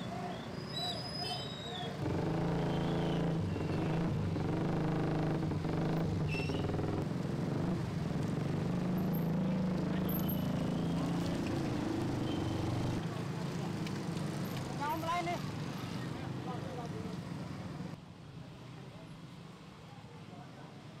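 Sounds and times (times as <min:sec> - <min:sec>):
motorcycle engines idling: 0:02.0 - 0:13.0.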